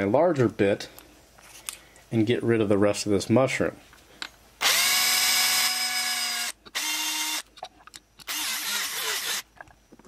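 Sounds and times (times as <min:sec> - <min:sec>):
electric drill whining: 0:04.6 - 0:07.4, 0:08.2 - 0:09.5.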